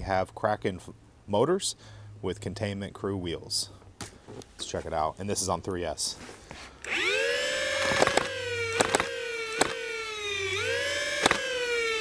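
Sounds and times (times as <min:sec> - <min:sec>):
flywheel motors whining: 0:06.8 - 0:12.0.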